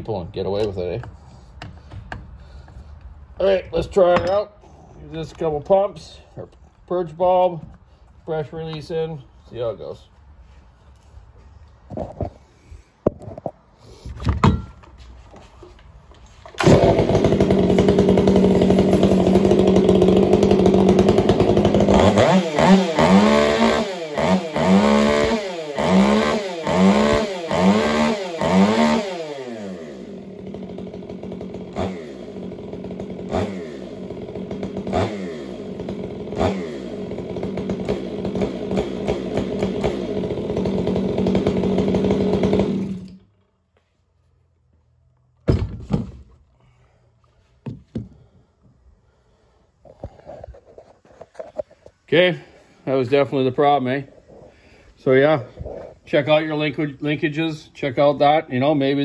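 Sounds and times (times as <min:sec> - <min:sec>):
chainsaw pull-started: 0:16.4 - 0:43.3
chainsaw running and revving: 0:16.6 - 0:43.3.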